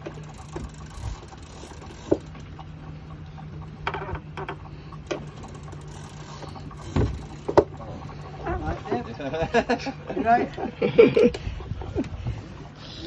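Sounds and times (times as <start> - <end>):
fishing reel gears clicking: 0.0 - 9.5
steady low hum: 0.0 - 13.0
sharp knocks: 6.9 - 7.8.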